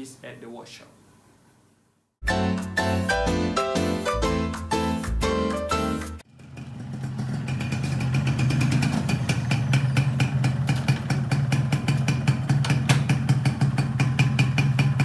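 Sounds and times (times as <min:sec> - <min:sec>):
motorcycle engine idling: 0:06.2 - 0:15.0.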